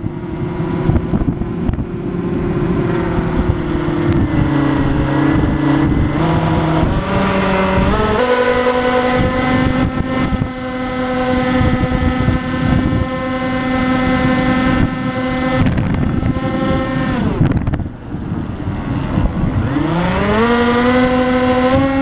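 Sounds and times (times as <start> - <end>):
model plane motor and propeller: 0.0 - 22.0
wind rushing over microphone: 0.0 - 22.0.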